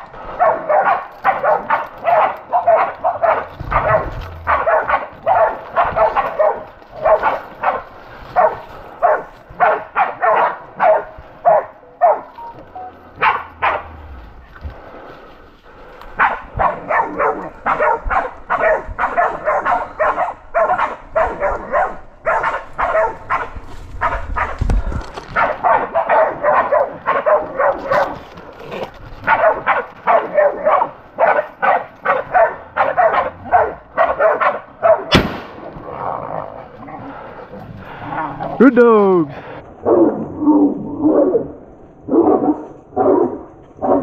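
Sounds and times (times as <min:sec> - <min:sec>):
dogs barking: 0:00.0 - 0:14.3, 0:16.1 - 0:24.7, 0:25.3 - 0:35.2, 0:39.8 - 0:44.0.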